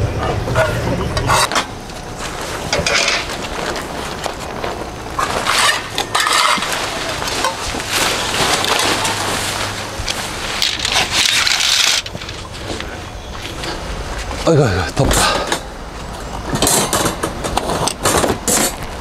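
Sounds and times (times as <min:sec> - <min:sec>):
tent fabric rustling and crinkling: 0:01.5 - 0:14.5.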